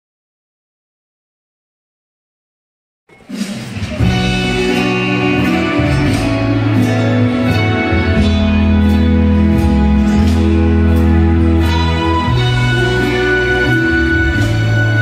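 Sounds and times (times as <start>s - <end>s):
slow waltz music: 4.0s - 15.0s.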